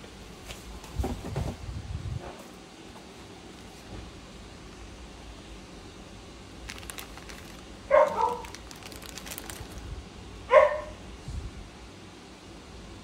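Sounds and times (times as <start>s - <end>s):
plastic bag crinkling: 6.6s - 10.0s
dog barking: 7.9s - 8.6s, 10.5s - 11.0s.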